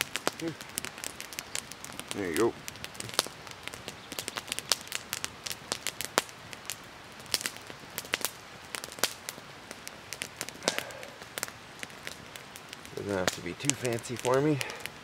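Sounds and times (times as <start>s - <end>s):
campfire crackling and popping: 0.0s - 15.0s.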